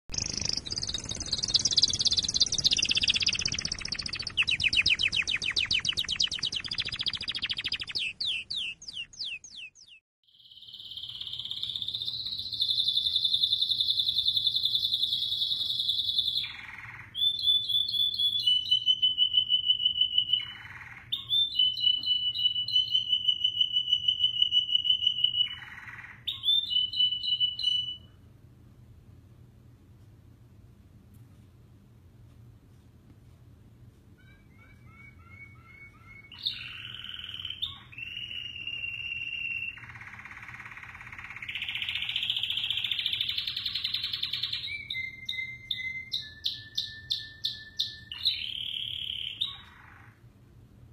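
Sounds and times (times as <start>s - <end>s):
canary singing trills: 0.1s - 28.2s, 34.2s - 50.2s
noisy sound with chirp-like sweeps: 0.1s - 28.9s, 34.1s - 50.9s.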